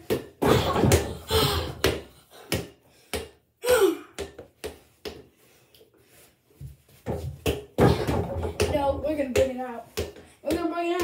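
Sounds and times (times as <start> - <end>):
small ball thudding and bouncing: 0.0 - 3.4, 7.0 - 11.0.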